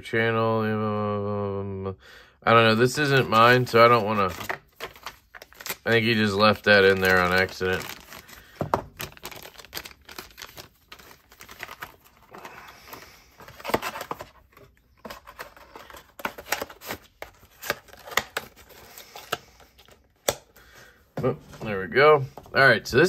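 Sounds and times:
plastic bag crinkling: 3.3 - 20.0.

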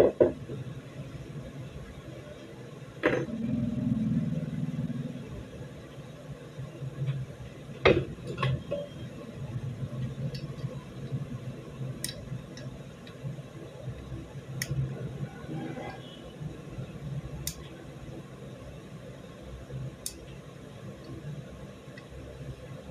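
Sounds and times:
low steady hum: 0.0 - 22.9.

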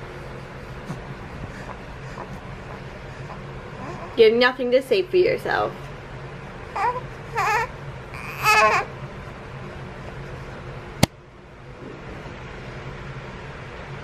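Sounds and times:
baby crying: 3.8 - 4.2, 6.8 - 8.9.

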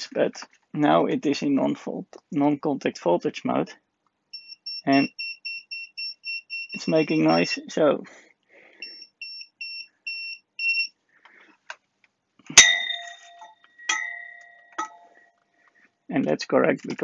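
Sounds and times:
multimeter short high beeps: 4.4 - 7.6, 8.8 - 10.9
sharp knocks with ringing tone: 12.6 - 15.2.

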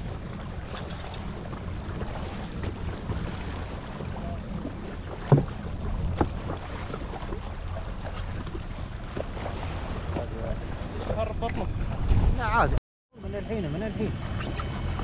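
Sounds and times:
water lapping at hull: 0.0 - 12.8, 13.4 - 15.0
jet ski engine idling: 13.2 - 15.0.

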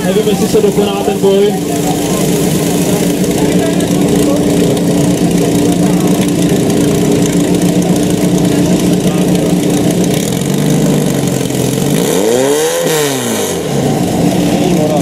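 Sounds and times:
water splashing: 0.0 - 7.0
petrol engine running: 0.0 - 15.0.

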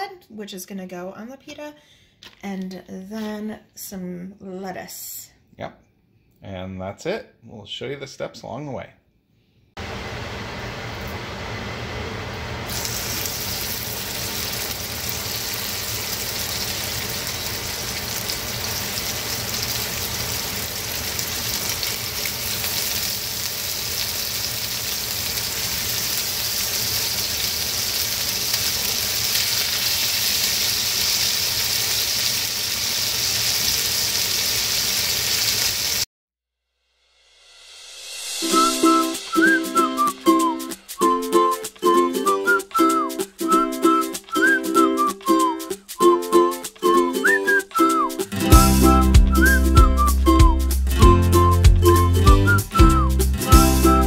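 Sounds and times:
chicken sizzling in hot oil: 9.8 - 36.1.

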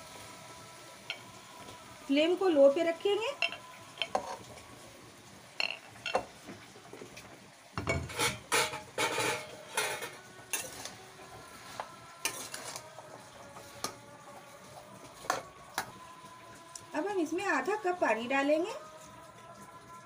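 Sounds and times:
metal spoon scraping a pan: 3.3 - 4.5, 7.9 - 12.8.

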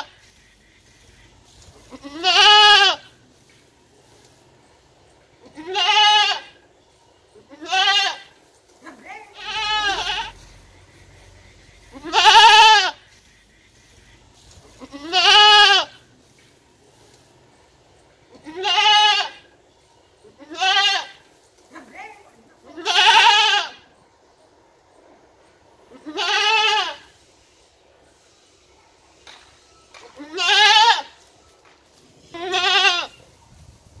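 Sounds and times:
young goat bleating: 1.8 - 3.1, 5.4 - 6.6, 7.5 - 8.4, 9.2 - 10.5, 11.9 - 13.0, 14.8 - 16.0, 18.3 - 19.4, 20.4 - 21.2, 22.6 - 23.9, 25.9 - 27.1, 30.2 - 31.2, 32.3 - 33.2.

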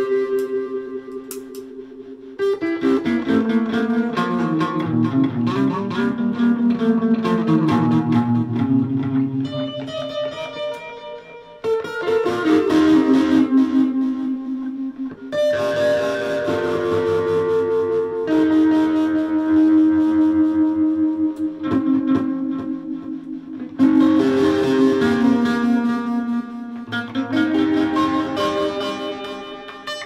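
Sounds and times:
electric guitar playing: 0.0 - 30.0.

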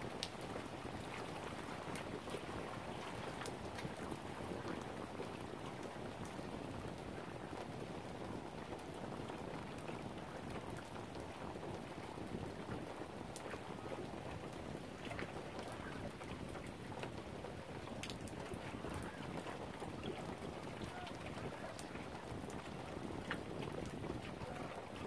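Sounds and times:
wind: 0.0 - 25.0
lapping water: 10.0 - 25.0.

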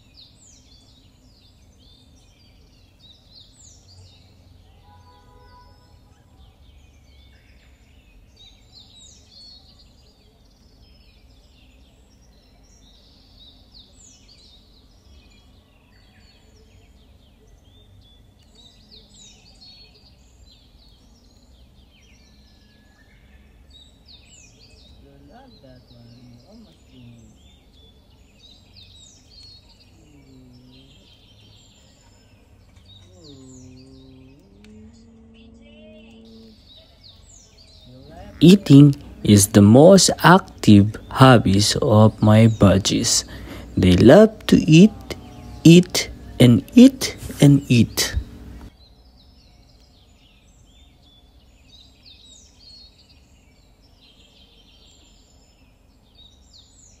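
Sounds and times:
low drawn-out humming tone: 26.2 - 39.7, 43.3 - 51.6
budgie chirping: 38.2 - 48.7.

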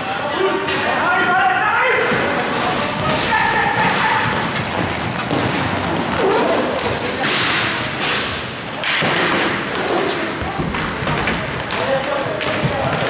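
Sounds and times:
skate wheels rolling: 0.1 - 13.0
hockey sticks clacking: 0.4 - 13.0
stick slapping puck: 2.1 - 13.0.

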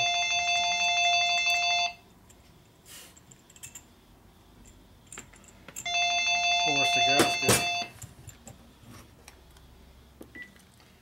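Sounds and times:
telephone electronic trilling ring: 0.0 - 2.0, 5.8 - 7.9.

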